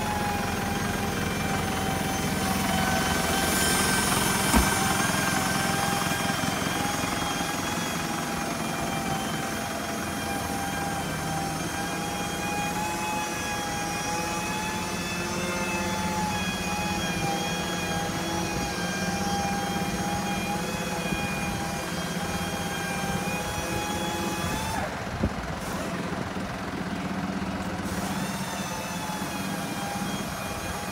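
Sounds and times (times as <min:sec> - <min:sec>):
diesel engine idling: 0:00.0 - 0:12.2, 0:23.6 - 0:30.8.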